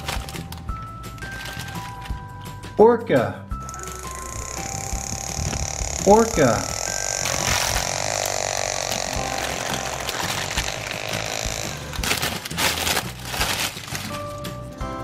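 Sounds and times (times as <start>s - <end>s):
plastic bag crinkling: 0.0s - 2.3s, 3.6s - 14.4s
steady buzzing: 3.6s - 13.5s.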